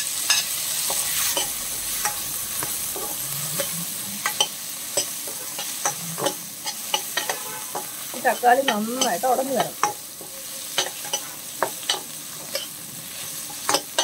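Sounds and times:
vegetables sizzling in hot oil: 0.0 - 14.0
spoon scraping metal pot: 0.3 - 10.0.

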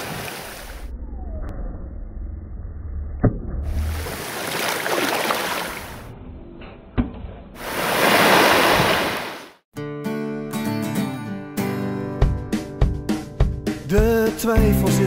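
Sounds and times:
surf washing onto beach: 7.6 - 9.5
strummed acoustic guitar music: 9.8 - 15.0.

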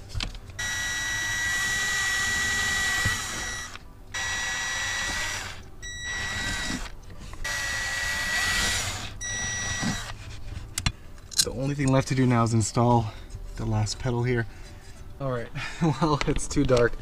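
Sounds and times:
cordless drill whining: 0.6 - 10.2.

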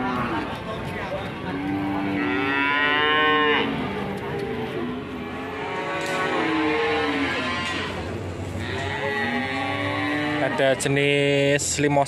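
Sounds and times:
cattle mooing: 1.5 - 11.0.

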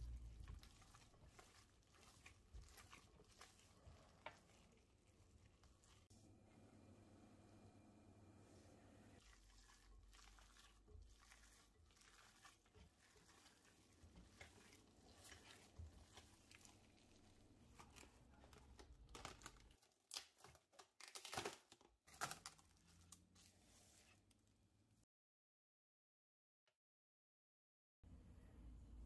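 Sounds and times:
hand squishing minced meat: 0.0 - 6.1, 9.2 - 19.9
cling film crinkling and tearing: 0.1 - 6.1, 9.4 - 23.5.

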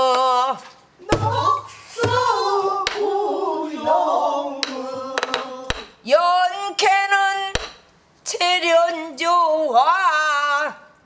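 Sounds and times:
voices singing long bending notes: 1.0 - 5.9.

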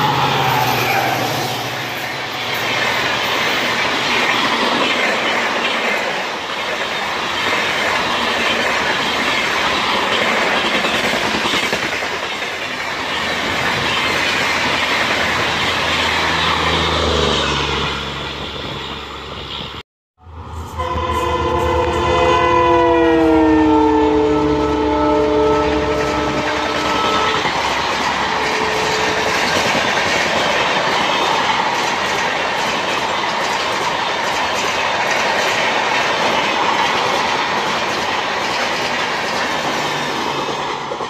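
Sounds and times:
train coaches rushing past: 0.0 - 41.0
diesel locomotive horn: 20.2 - 27.6, 28.2 - 29.7.

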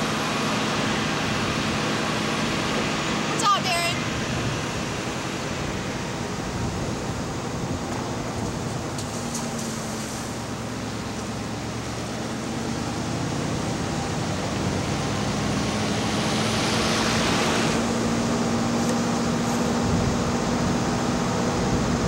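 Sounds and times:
vehicle engine hum and road noise: 0.0 - 22.0.

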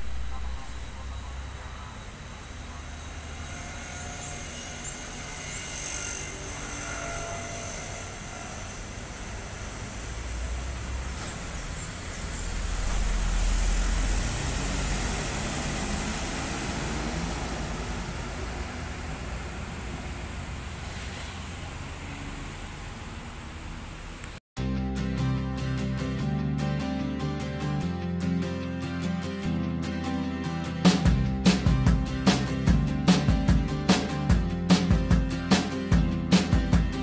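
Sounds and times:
bus engine and tyre rumble: 8.1 - 24.4.

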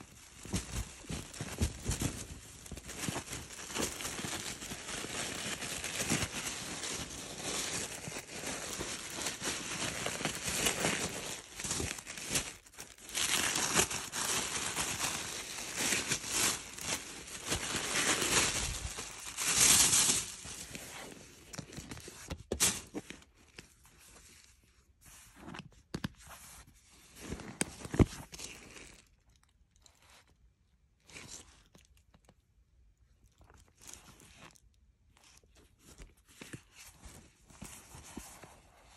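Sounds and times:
fabric rustling: 0.0 - 21.2
tissue paper crinkling: 0.0 - 24.4, 33.6 - 38.9.

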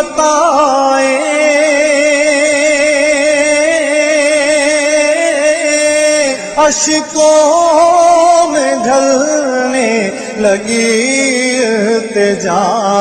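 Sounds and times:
short breath: 10.1 - 10.4.

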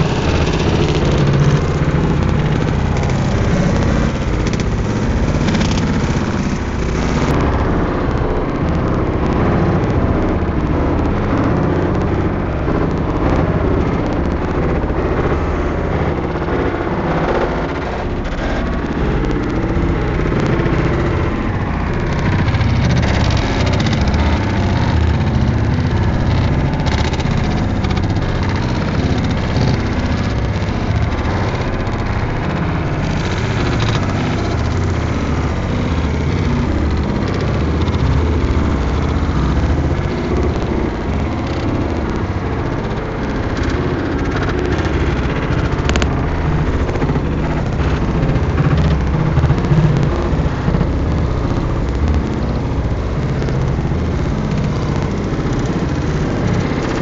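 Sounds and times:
car wash machinery rumble: 0.0 - 57.0.

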